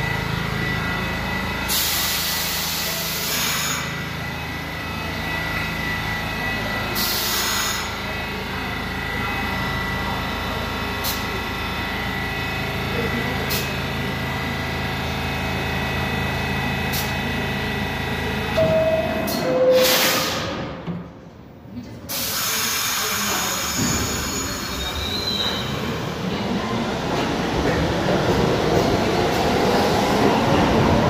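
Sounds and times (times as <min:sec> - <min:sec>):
two-tone door chime: 0:18.6 - 0:19.9
hiss of doors closing: 0:19.8 - 0:20.6.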